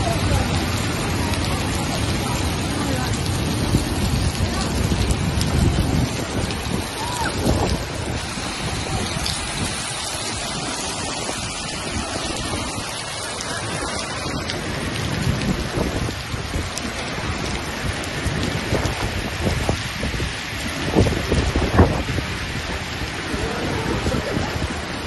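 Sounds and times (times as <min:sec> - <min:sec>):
rain and hail hissing: 0:00.0 - 0:25.0
wind rumbling on microphone: 0:00.0 - 0:25.0.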